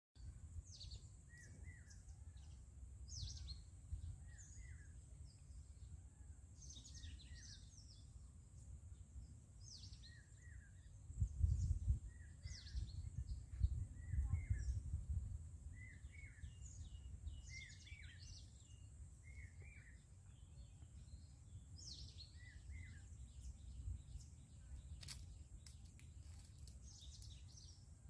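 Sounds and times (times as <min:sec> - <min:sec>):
low wind rumble on microphone: 0:01.6 - 0:04.9, 0:09.6 - 0:18.7, 0:19.3 - 0:27.8
birds chirping: 0:15.8 - 0:27.9.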